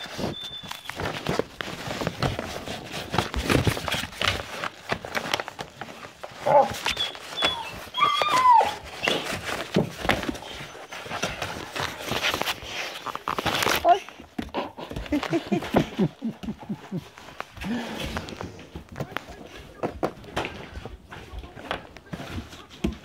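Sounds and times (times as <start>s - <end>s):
puppy squeaks and whine: 0.0s - 1.0s, 6.6s - 9.4s
paws scrabbling on floor: 0.0s - 23.0s.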